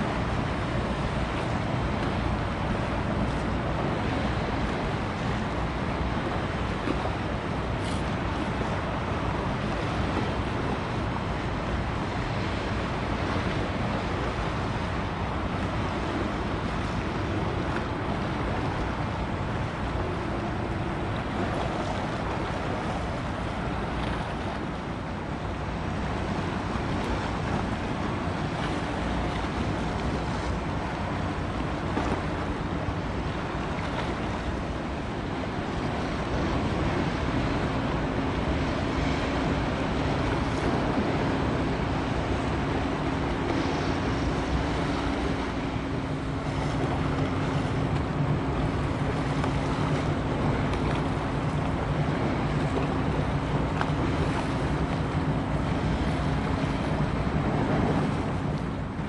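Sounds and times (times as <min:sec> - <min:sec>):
bow wave washing: 0:00.0 - 0:59.0
faint ship hum: 0:00.0 - 0:59.0
rush of wind: 0:00.0 - 0:59.0.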